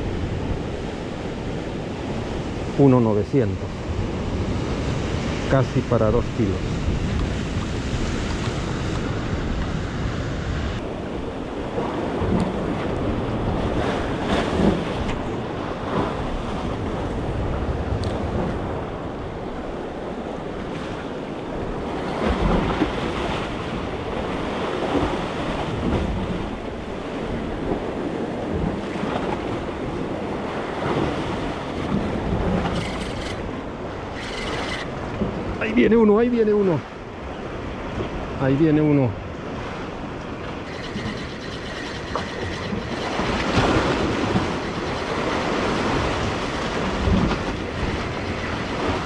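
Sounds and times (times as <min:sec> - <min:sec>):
wind buffeting microphone: 0:03.5 - 0:35.9, 0:39.2 - 0:49.0
surf breaking over rocks: 0:39.9 - 0:49.0.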